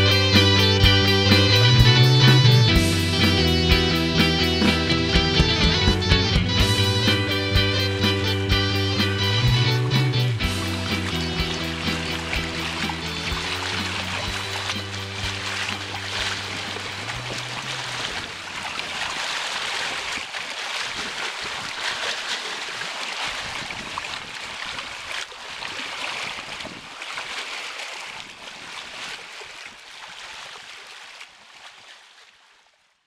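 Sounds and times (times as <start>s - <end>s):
held low music chord: 0.0s - 18.2s
waves washing: 0.0s - 31.8s.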